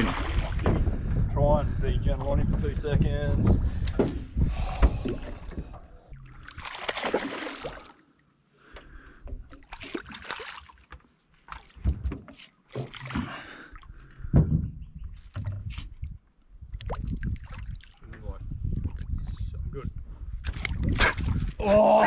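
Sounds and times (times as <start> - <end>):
low knocks in a boat: 0.4 - 1.2
fish splashing in a boat: 4.8 - 8.1, 9.3 - 13.9.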